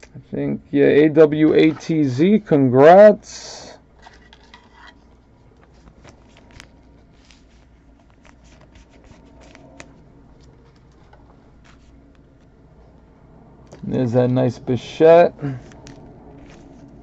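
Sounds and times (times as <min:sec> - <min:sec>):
cards being flipped through: 0:04.0 - 0:12.5, 0:15.6 - 0:17.0.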